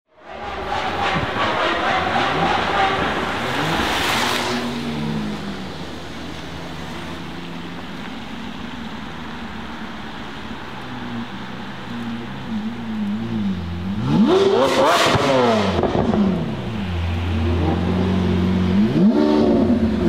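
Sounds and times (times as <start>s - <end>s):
car engine revving: 0.2s - 9.4s, 11.0s - 20.0s
car engine at low revs: 2.3s - 20.0s.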